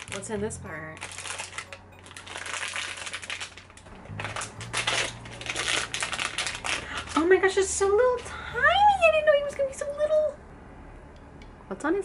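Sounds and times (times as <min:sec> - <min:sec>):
packaging crinkled and torn: 0:00.0 - 0:00.3, 0:01.0 - 0:07.4.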